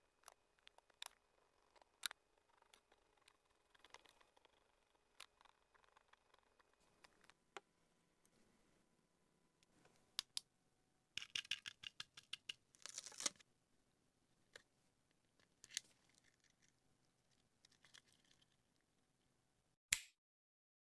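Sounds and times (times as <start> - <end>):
sticker peeling crackle: 12.8 - 13.4.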